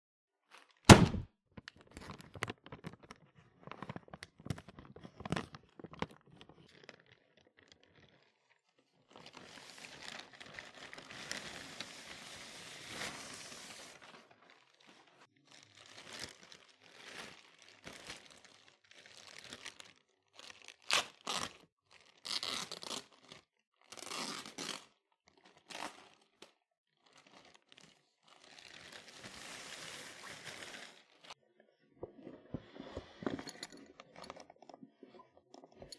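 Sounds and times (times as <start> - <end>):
loud thump: 0.9 - 1.2
plastic bag crinkling: 5.7 - 23.4, 27.0 - 31.4.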